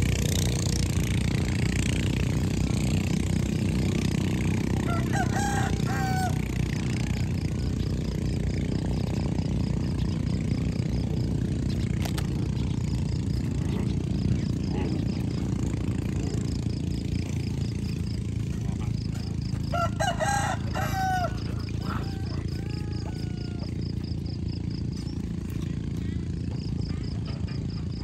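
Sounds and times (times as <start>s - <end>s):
low rumble outdoor background: 0.0s - 28.0s
pitched animal calls: 13.4s - 24.4s.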